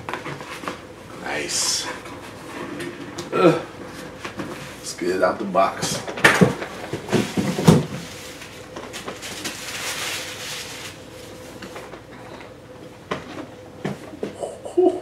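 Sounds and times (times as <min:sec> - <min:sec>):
cardboard knocks and scrapes: 0:06.4 - 0:08.2
cardboard rustling slide: 0:06.6 - 0:11.9.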